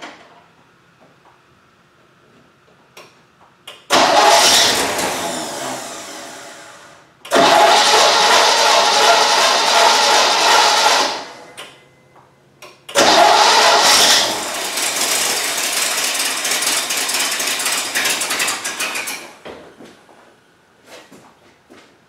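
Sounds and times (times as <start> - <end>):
engine starter cranking: 3.9 - 6.1, 7.3 - 11.4, 12.9 - 19.4.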